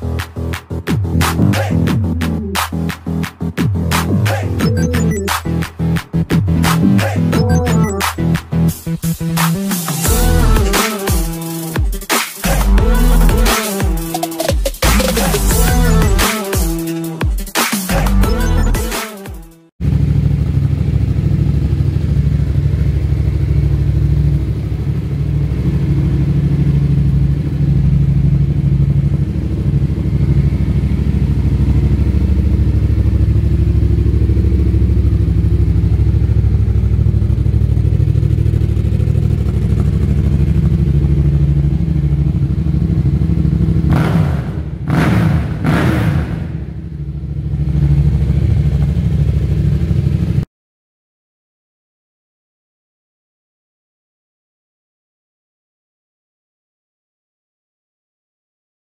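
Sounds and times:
motorcycle engine revving: 0:00.0 - 0:11.8, 0:19.8 - 0:50.5
motorcycle engine idling: 0:19.8 - 0:50.4.

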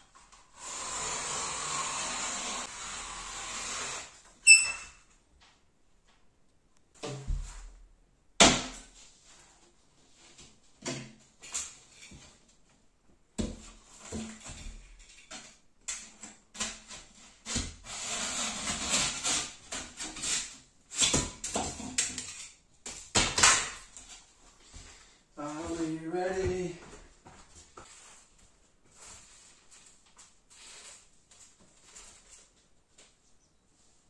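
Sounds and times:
utility knife rasping through board: 0:00.6 - 0:04.3, 0:16.6 - 0:21.3
board bumps and scrapes: 0:07.0 - 0:07.8.

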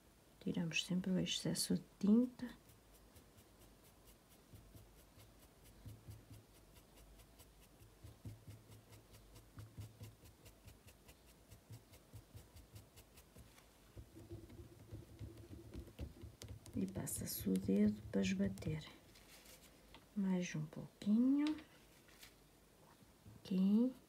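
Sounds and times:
paintbrush scratching on fabric: 0:02.1 - 0:19.7.

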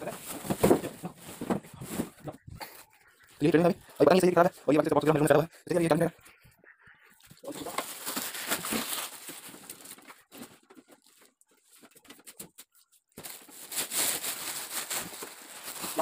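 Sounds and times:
plastic wrap rustling and crinkling: 0:00.0 - 0:06.0, 0:07.2 - 0:16.0.

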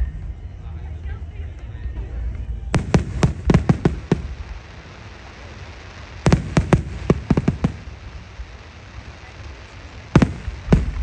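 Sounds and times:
fireworks bursting with sharp bangs: 0:02.7 - 0:11.0.

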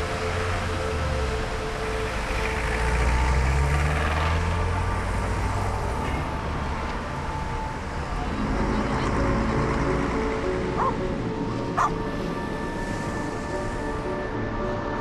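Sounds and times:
street traffic noise: 0:00.0 - 0:15.0
vehicle passing close: 0:02.2 - 0:06.0.

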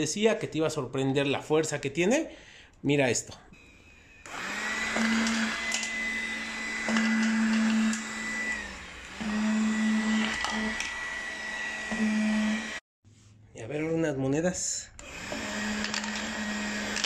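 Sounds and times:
vacuum cleaner motor whine: 0:03.6 - 0:12.8, 0:15.0 - 0:17.0.

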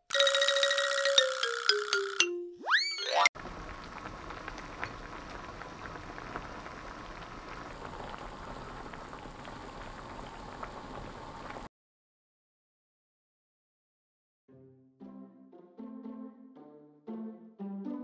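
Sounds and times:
broth boiling and bubbling: 0:03.4 - 0:11.7.

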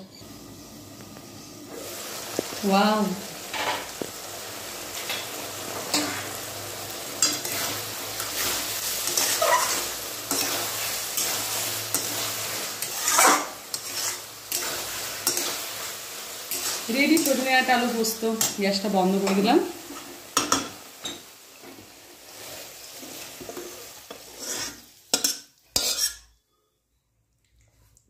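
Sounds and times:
curry sizzling: 0:00.0 - 0:26.4
metal spatula scraping pan: 0:07.2 - 0:15.6, 0:22.8 - 0:26.4.

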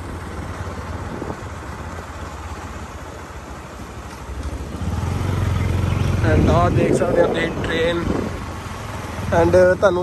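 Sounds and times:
wind noise on microphone: 0:00.0 - 0:02.0, 0:04.7 - 0:09.4
vehicle engine running: 0:00.0 - 0:10.0.

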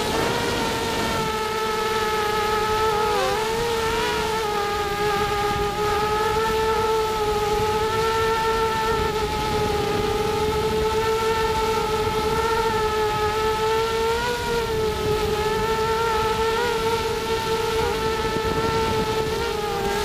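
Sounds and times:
quadcopter motors whining: 0:00.0 - 0:20.0
wind rumbling on microphone: 0:00.0 - 0:20.0.

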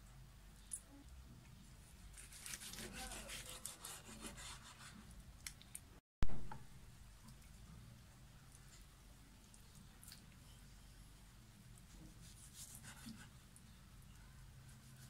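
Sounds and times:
knife sawing through meat: 0:02.2 - 0:05.0.

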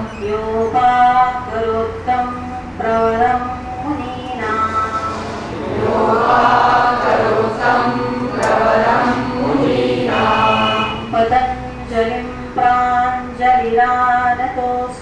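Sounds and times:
group chanting in unison: 0:05.1 - 0:11.3.

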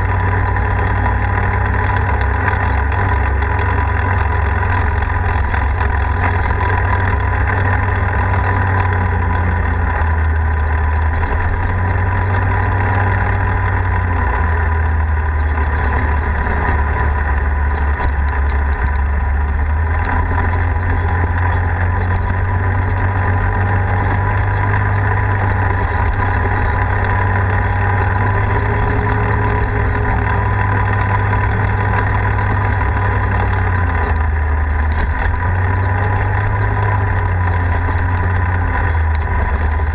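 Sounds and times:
vehicle engine cruising: 0:00.0 - 0:39.9.

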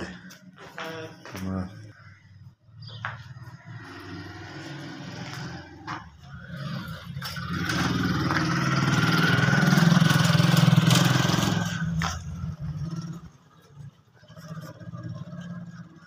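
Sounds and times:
motorcycle engine passing by: 0:02.8 - 0:16.0.

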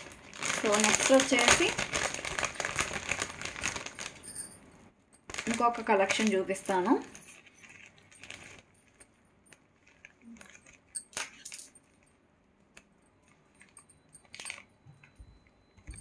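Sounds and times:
metal jewellery clinking: 0:06.6 - 0:16.0.

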